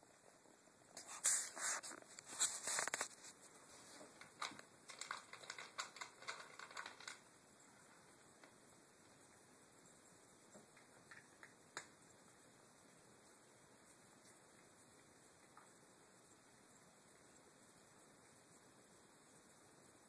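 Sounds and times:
kibble rattling in plastic bowl: 4.0 - 7.3.

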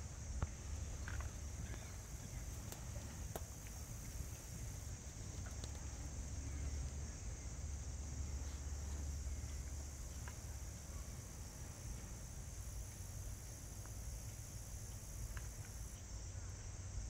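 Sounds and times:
high-pitched hiss: 0.0 - 17.0
steady low rumble: 0.0 - 17.0
faint clicks: 5.3 - 5.9.

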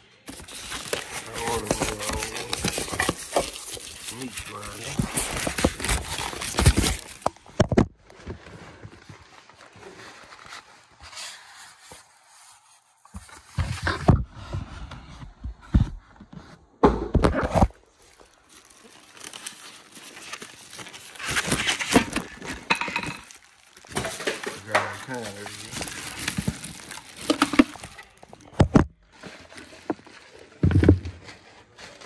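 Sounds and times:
plastic wrap and foam rustling: 0.0 - 15.1, 17.4 - 32.0
parts knocking together: 21.4 - 25.1.

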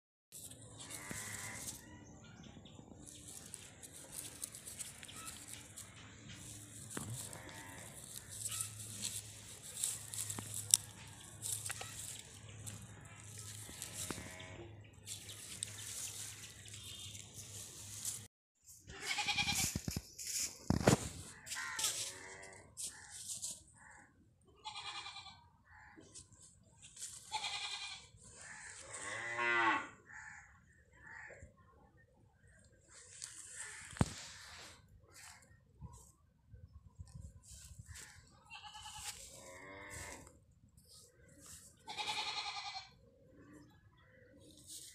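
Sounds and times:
calf bleating: 0.8 - 1.8, 6.9 - 8.9, 13.4 - 14.6, 18.9 - 19.7, 24.6 - 25.4, 27.3 - 29.9, 38.5 - 40.3, 41.8 - 43.0
cow mooing: 29.0 - 30.0.

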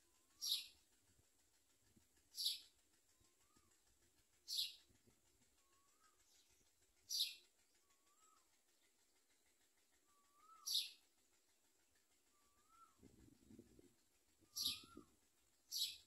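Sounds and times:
nestlings hissy begging calls: 0.4 - 0.7, 10.0 - 11.0, 14.5 - 15.0.

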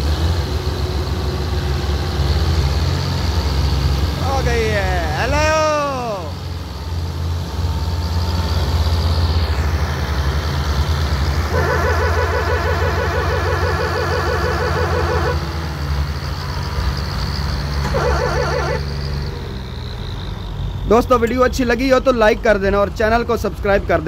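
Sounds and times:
tractor engines running hard: 0.0 - 24.0
warbling multi-tone horn: 11.4 - 15.6, 17.9 - 19.0.

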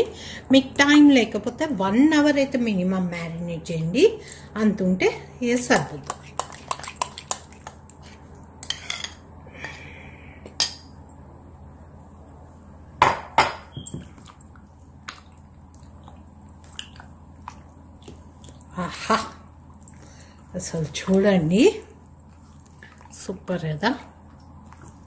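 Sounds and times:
low steady hum: 0.0 - 25.0.

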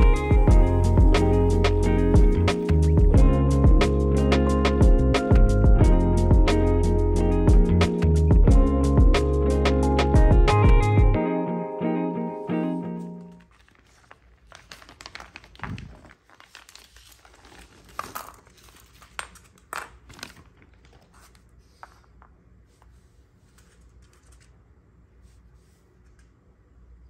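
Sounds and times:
plastic wrapping crinkling: 13.2 - 21.6.

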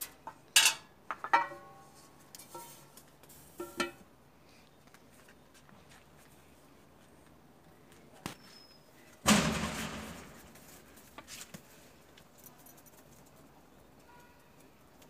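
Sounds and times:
loud sudden crack: 9.2 - 10.6.

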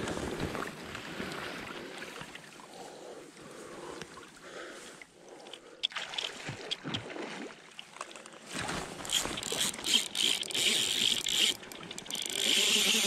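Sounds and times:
river water splashing: 0.0 - 2.8, 4.1 - 13.0.

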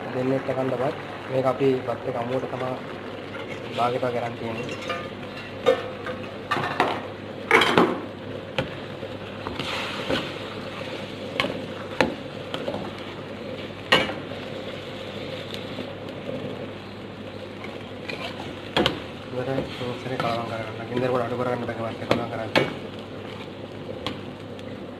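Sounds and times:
utensil scraping and clanking on wok: 4.5 - 6.4, 18.0 - 21.2.

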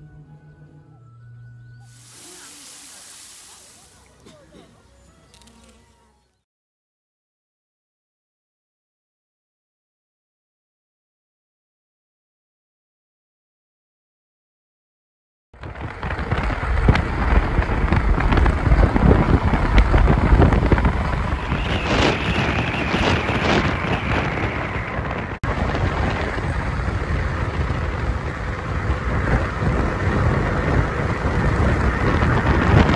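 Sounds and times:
car road rush at highway speed: 15.6 - 32.9
wind buffeting microphone: 15.6 - 32.9.

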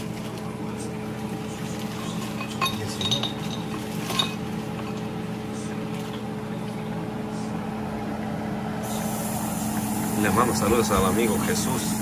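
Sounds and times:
steady low hum: 0.0 - 12.0
kitchenware clinking: 1.7 - 5.3.

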